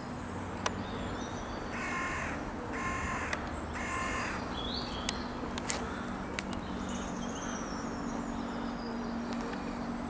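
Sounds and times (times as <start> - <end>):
crow cawing: 1.8 - 4.4, 5.8 - 6.2.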